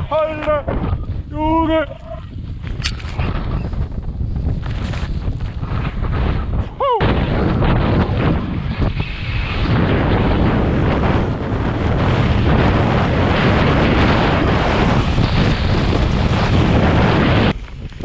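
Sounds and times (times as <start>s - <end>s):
wind buffeting microphone: 0.0s - 18.0s
skis scraping on snow: 4.5s - 6.3s, 12.9s - 18.0s.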